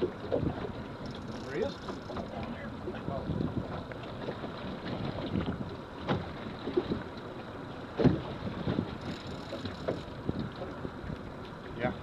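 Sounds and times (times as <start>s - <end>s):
water lapping against boat hull: 0.0s - 12.0s
wind buffeting microphone: 2.0s - 7.0s.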